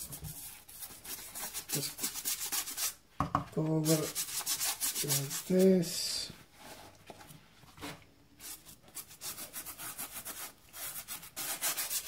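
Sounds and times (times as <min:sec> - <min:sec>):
brush scrubbing wet fabric: 0:03.7 - 0:05.9, 0:08.4 - 0:12.0.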